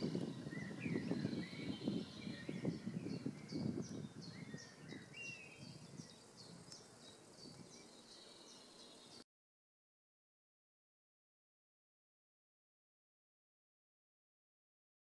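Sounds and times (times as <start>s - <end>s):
lower bird calls: 0.0s - 9.2s
songbird chirping: 0.0s - 9.3s.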